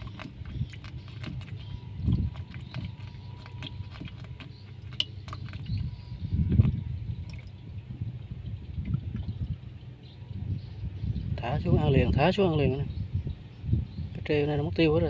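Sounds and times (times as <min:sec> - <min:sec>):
water dripping and splashing: 0:00.0 - 0:07.6, 0:08.7 - 0:09.7
low rumble: 0:00.0 - 0:14.3.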